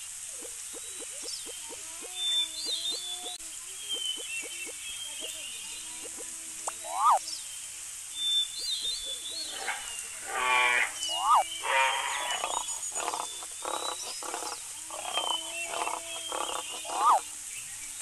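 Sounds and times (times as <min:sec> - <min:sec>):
quick pulsed animal calls: 0:05.9 - 0:07.2, 0:09.5 - 0:17.2
rising-and-falling chirp: 0:06.8 - 0:07.2, 0:08.3 - 0:17.2
drawn-out pitched animal calls: 0:09.4 - 0:17.2.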